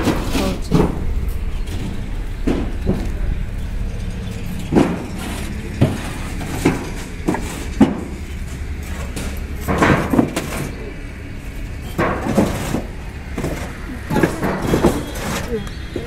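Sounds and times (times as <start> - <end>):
low hum: 0.0 - 16.0
bricks clunking together: 4.7 - 10.8.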